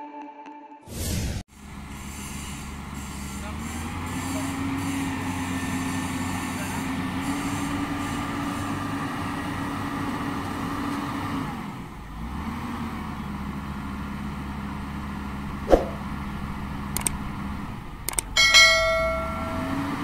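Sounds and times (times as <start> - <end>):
diesel engine running: 1.5 - 20.0
short clicks: 16.9 - 17.2, 18.0 - 18.4.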